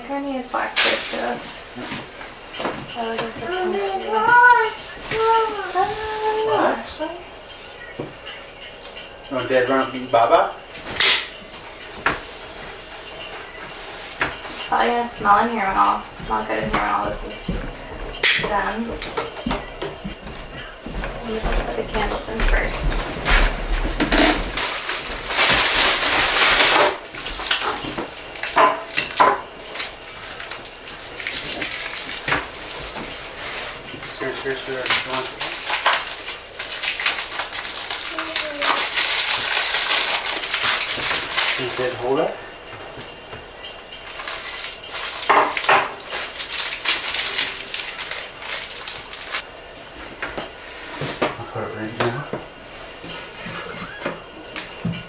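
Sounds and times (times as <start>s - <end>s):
needles rustling: 21.2s - 28.6s, 46.0s - 49.5s.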